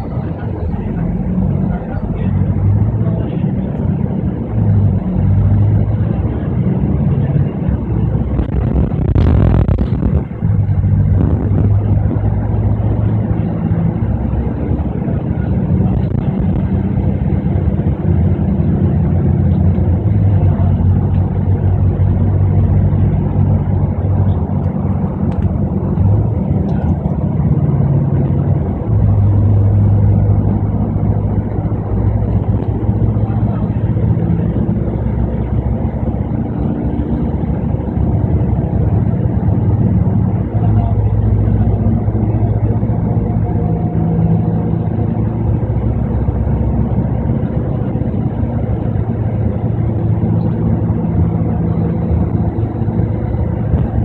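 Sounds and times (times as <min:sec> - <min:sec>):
bus diesel engine droning: 0:00.0 - 0:54.0
road noise: 0:00.0 - 0:54.0.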